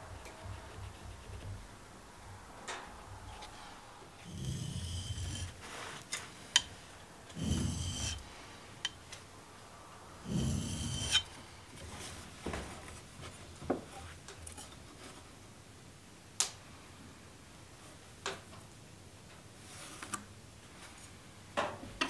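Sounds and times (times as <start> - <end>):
blade scraping on sharpening stone: 4.2 - 5.6, 7.3 - 8.3, 10.3 - 11.3.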